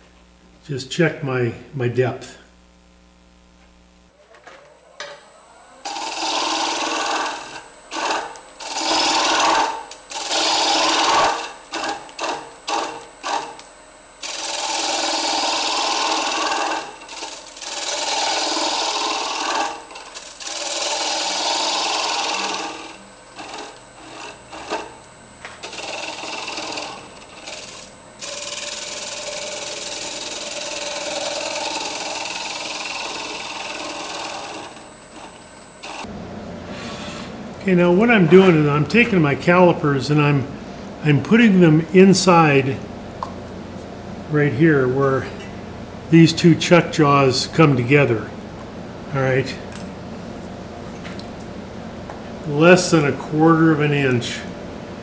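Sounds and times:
high whine of lathe: 0:04.1 - 0:39.1
tool cutting wood on lathe: 0:05.0 - 0:36.1.

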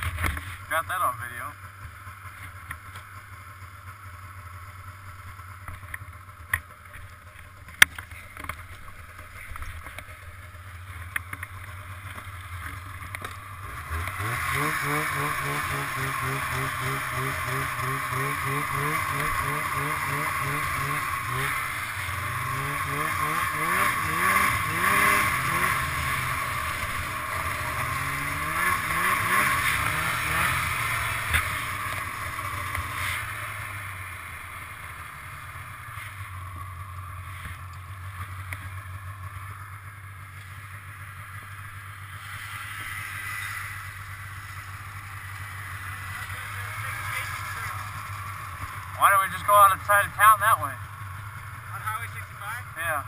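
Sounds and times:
snowmobile engine revving: 0:12.8 - 0:53.0.

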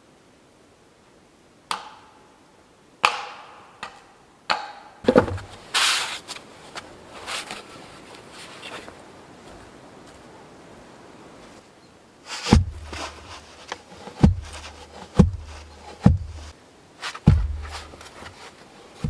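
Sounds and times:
sharp knocks on wood: 0:03.0 - 0:05.5, 0:12.5 - 0:13.2, 0:14.1 - 0:16.5, 0:17.3 - 0:17.9
wood scraping and rustling: 0:05.0 - 0:10.3, 0:12.2 - 0:19.0
heavy low thuds: 0:12.5 - 0:13.4, 0:14.2 - 0:16.5, 0:17.3 - 0:18.0.

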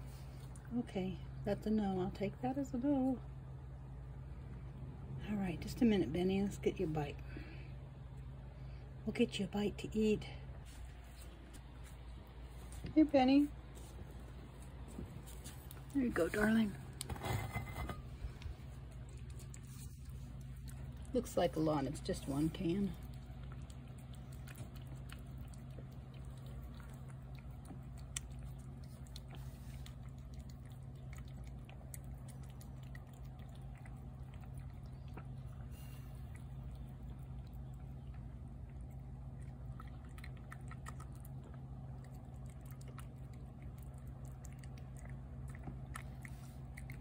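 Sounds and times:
low hum: 0:00.0 - 0:47.0
cat chewing and lapping: 0:10.0 - 0:47.0.

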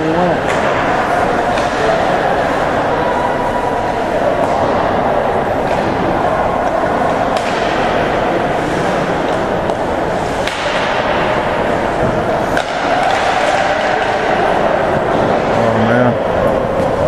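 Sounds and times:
arena crowd din: 0:00.0 - 0:17.0
hockey sticks and puck clacking: 0:00.4 - 0:02.9, 0:05.6 - 0:15.6.

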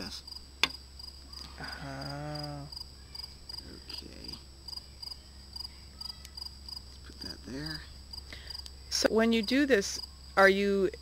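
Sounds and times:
crickets chirping: 0:00.0 - 0:11.0
person humming: 0:01.4 - 0:02.7.

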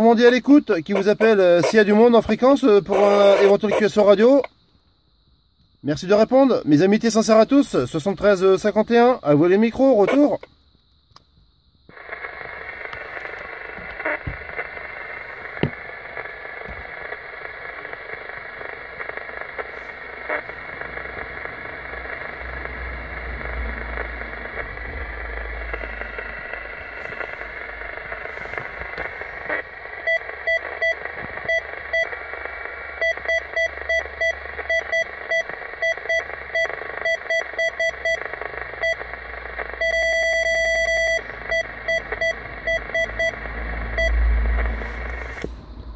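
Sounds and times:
radio static hiss: 0:00.0 - 0:45.9.

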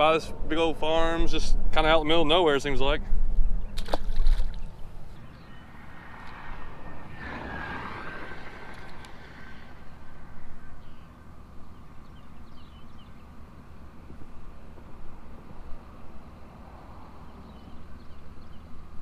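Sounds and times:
fish splashing into water: 0:03.8 - 0:04.7
faint thin whine: 0:03.9 - 0:12.8
low rumble: 0:04.6 - 0:11.3.

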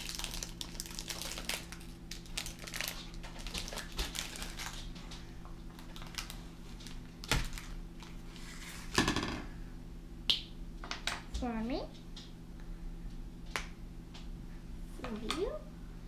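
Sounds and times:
wrapper crinkling: 0:00.0 - 0:08.5.

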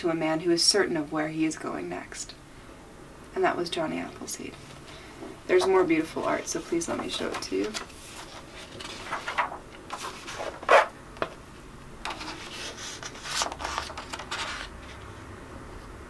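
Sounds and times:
book pages turning: 0:05.6 - 0:11.4, 0:12.0 - 0:15.1.

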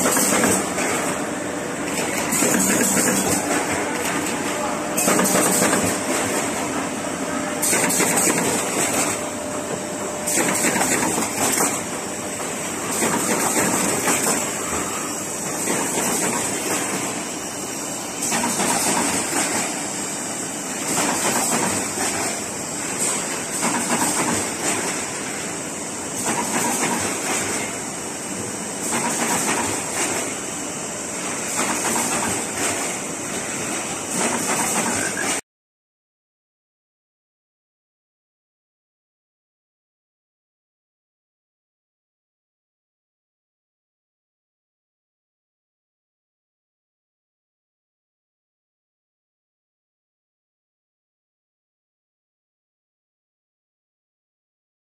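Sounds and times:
machine running: 0:00.0 - 0:35.4.

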